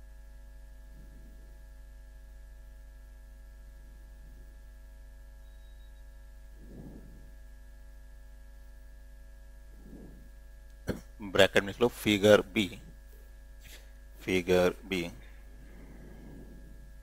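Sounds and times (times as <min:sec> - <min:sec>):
electrical mains hum: 0:00.0 - 0:17.0
faint short soft sounds: 0:06.6 - 0:07.6, 0:09.7 - 0:10.6.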